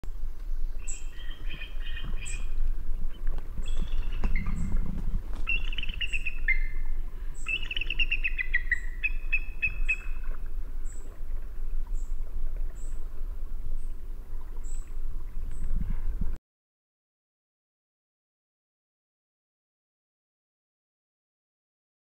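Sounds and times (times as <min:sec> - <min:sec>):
steady low rumble: 0:00.1 - 0:07.5
birds singing and calling: 0:00.5 - 0:11.2, 0:14.6 - 0:15.7.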